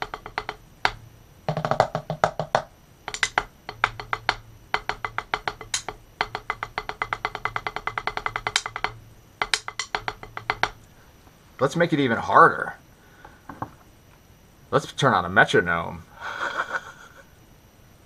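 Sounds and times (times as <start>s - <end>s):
drumsticks clicking on practice pad: 0.0s - 10.8s.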